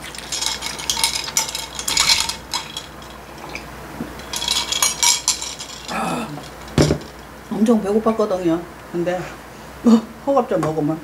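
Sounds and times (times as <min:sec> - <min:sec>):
spoon clinking in a glass: 0:00.0 - 0:03.6, 0:04.2 - 0:05.9.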